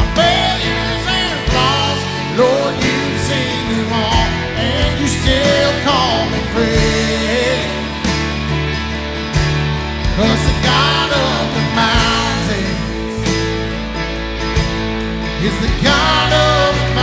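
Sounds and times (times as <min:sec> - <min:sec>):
man singing: 0:00.0 - 0:08.2, 0:10.0 - 0:13.4, 0:15.4 - 0:17.0
worship band playing: 0:00.0 - 0:17.0.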